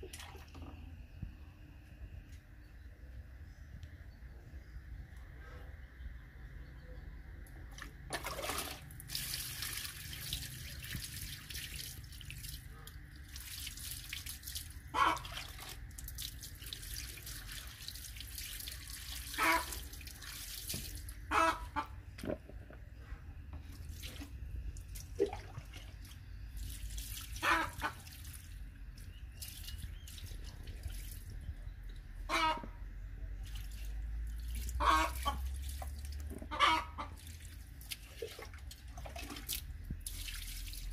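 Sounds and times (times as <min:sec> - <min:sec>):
water splashing on fish and floor: 0:07.8 - 0:12.6.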